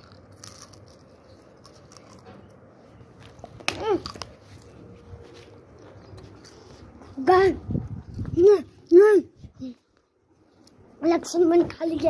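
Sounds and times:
chips being chewed: 0:00.0 - 0:02.6, 0:03.2 - 0:04.8.

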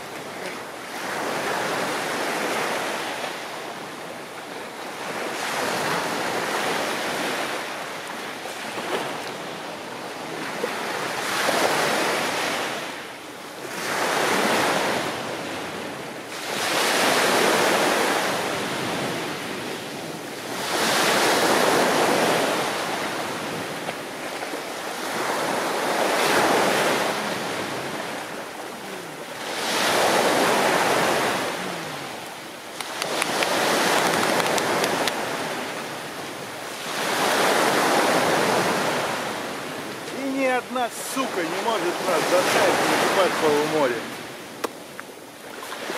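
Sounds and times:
waves washing up pebble beach: 0:16.3 - 0:44.6.

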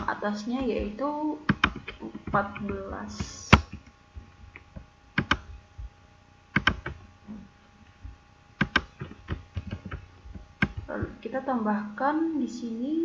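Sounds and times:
computer mouse and keyboard clicks: 0:01.5 - 0:05.6, 0:06.6 - 0:07.0, 0:08.6 - 0:11.1.

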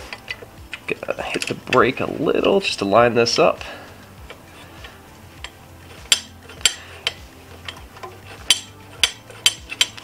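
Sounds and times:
sharp metal clicks and taps: 0:05.4 - 0:10.0.

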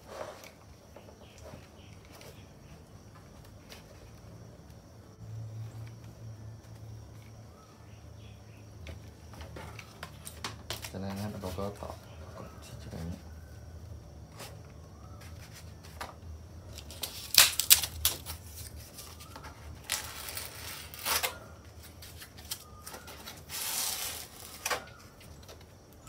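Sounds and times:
foam scraping rub: 0:00.0 - 0:00.7, 0:23.0 - 0:24.7.

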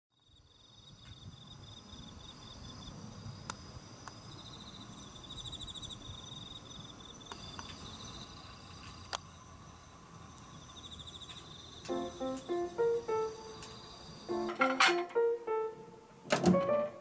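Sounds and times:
insects trilling: 0:00.2 - 0:15.7
pulsed chirping trill: 0:11.9 - 0:16.0.

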